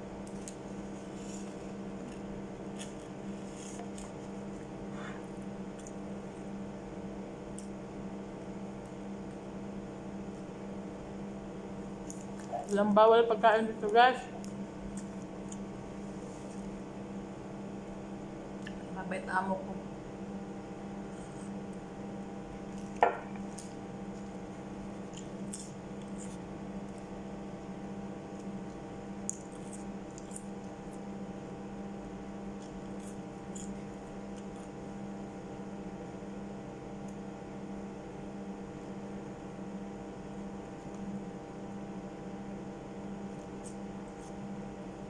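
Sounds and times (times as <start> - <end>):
appliance electrical hum: 0.0 - 45.0
ceramic mug set down: 23.0 - 23.3.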